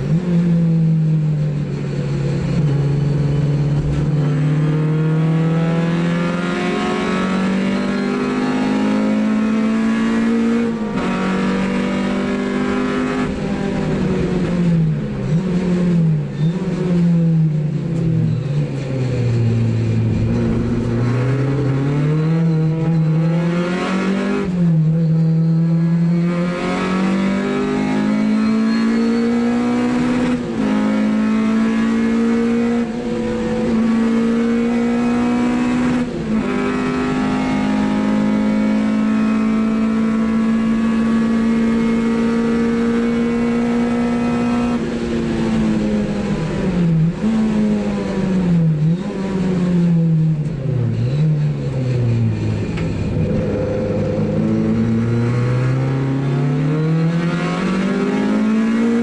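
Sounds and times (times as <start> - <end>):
road and tyre noise: 0.0 - 59.0
race car engine revving: 1.6 - 59.0.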